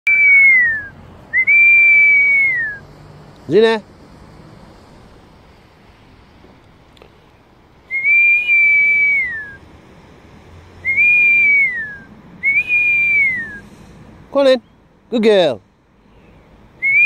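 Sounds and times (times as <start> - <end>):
high whistle with downward slide: 0.1 - 2.8, 7.9 - 9.6, 10.8 - 13.7, 16.8 - 17.0.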